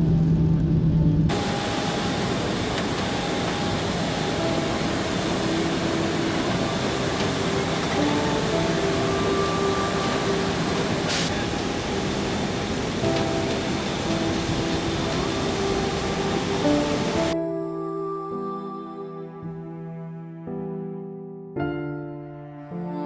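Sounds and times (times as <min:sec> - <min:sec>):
aircraft engine rushing: 0:00.0 - 0:17.4
faint sustained notes: 0:00.0 - 0:23.0.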